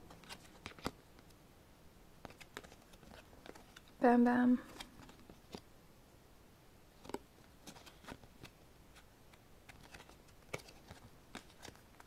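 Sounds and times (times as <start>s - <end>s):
photo cards clicking and sliding: 0.1s - 1.4s, 2.2s - 4.0s, 4.7s - 5.7s, 7.0s - 12.0s.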